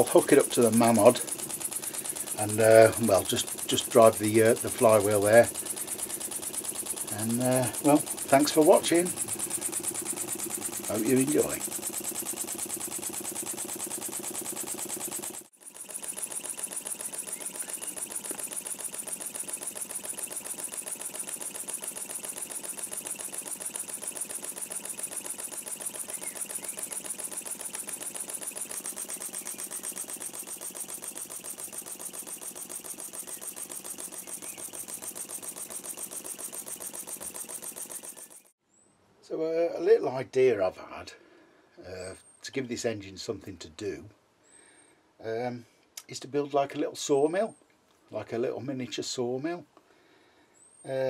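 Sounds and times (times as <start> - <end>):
model steam engines running: 0.0 - 38.5.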